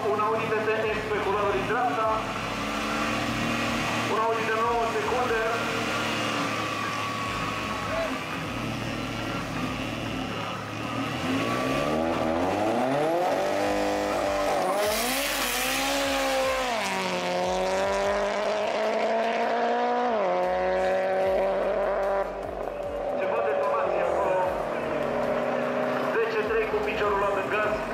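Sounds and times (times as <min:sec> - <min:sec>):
race car engines revving: 0:00.0 - 0:27.9.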